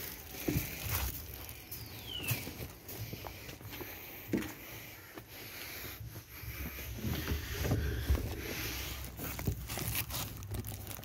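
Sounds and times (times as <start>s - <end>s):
fabric rustling: 6.9s - 11.0s.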